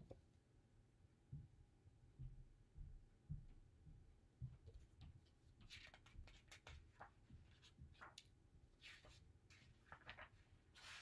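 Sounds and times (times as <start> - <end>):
book pages rustling: 4.8 - 11.0.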